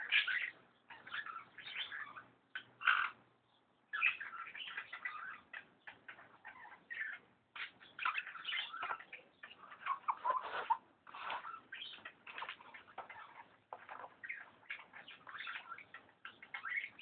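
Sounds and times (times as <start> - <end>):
scratching and scraping: 9.8 - 14.6.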